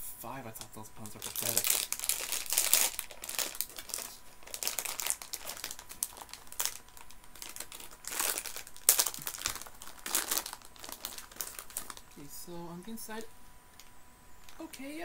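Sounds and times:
plastic packet crinkling: 1.0 - 12.3.

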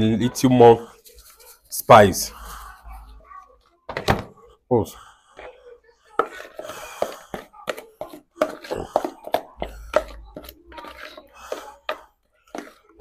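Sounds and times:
metal spoon beating batter in bowl: 5.4 - 13.0.

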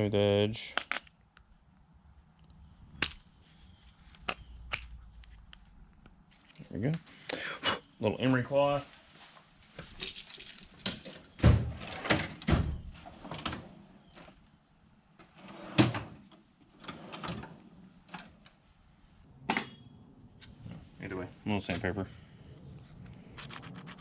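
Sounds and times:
steel drawers opening and shutting: 10.6 - 14.4, 15.2 - 18.5.

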